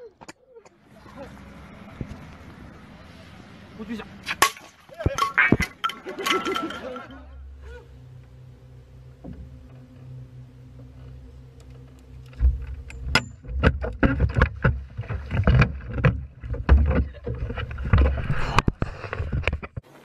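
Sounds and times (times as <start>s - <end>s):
low steady hum: 0.0s - 19.7s
loud water splashes: 4.2s - 6.7s.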